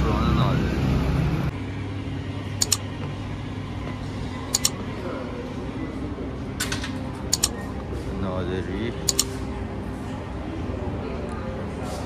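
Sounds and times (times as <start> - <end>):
room tone hum: 0.0 - 12.0
mouse double click: 2.6 - 2.8, 4.5 - 4.8, 7.3 - 7.6, 9.1 - 9.3.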